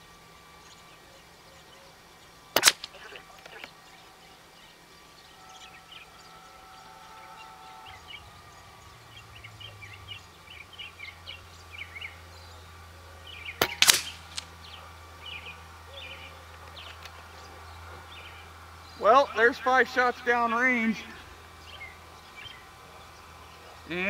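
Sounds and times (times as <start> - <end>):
small birds chirping: 0.0 - 24.0
air rifle shot: 2.6 - 3.1, 13.6 - 14.5.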